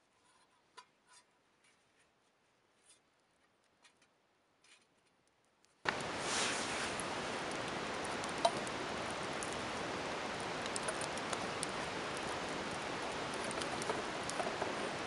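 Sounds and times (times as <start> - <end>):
campfire crackling clicks: 5.2 - 6.2, 6.9 - 15.0
loud rushing hiss: 5.9 - 7.9.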